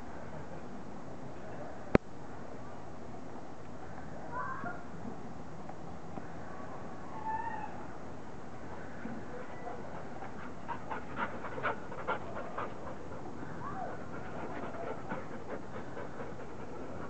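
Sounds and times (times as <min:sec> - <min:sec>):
dog panting: 0:09.7 - 0:17.0.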